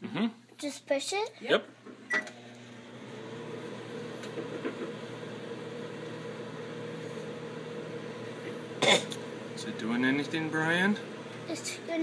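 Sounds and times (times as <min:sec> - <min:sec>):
microwave oven humming: 0:01.9 - 0:12.0
microwave start beep: 0:02.1 - 0:02.5.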